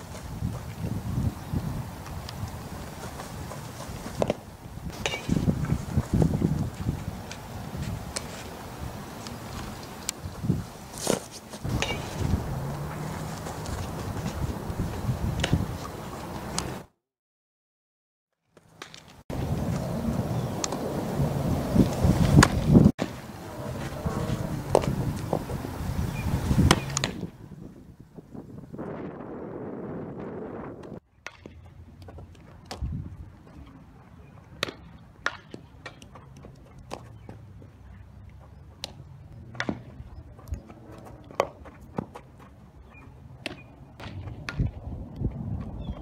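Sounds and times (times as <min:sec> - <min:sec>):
wind buffeting microphone: 0:00.0 - 0:16.9, 0:19.3 - 0:31.0, 0:31.7 - 0:34.9, 0:36.8 - 0:46.0
bat hitting ball: 0:04.1 - 0:05.8, 0:11.0 - 0:14.4, 0:21.8 - 0:25.6, 0:26.6 - 0:27.3, 0:30.8 - 0:31.7, 0:34.6 - 0:36.2, 0:38.8 - 0:40.0.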